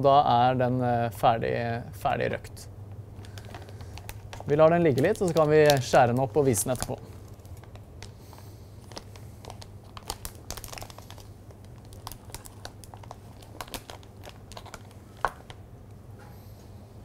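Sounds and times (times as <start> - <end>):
plastic bag crinkling: 3.1 - 15.7.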